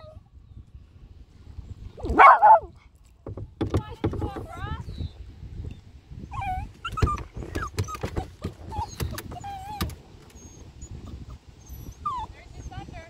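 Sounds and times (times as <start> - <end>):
sharp knocks: 3.2 - 4.5
small dog whimpering: 6.2 - 12.9.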